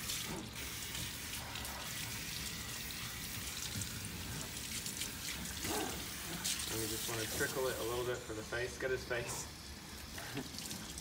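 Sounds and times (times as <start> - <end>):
water spraying into steel sink: 0.0 - 8.1.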